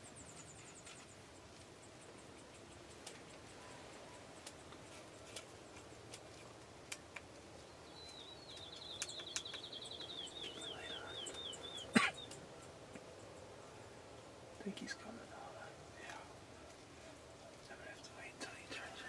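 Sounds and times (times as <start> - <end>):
songbird singing: 0.0 - 19.0
soft clicks: 8.1 - 11.5.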